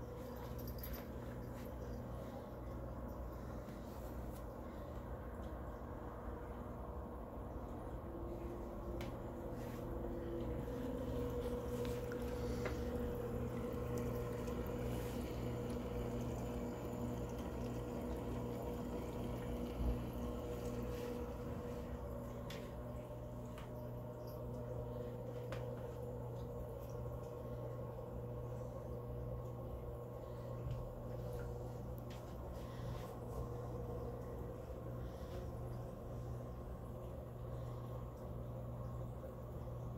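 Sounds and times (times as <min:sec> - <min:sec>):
steady low hum: 0:00.0 - 0:39.9
water trickling and splashing: 0:10.6 - 0:23.8.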